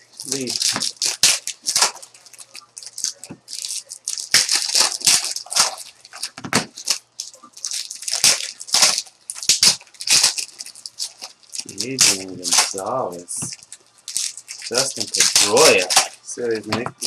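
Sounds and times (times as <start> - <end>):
card pack wrappers crinkling: 0.0 - 17.0.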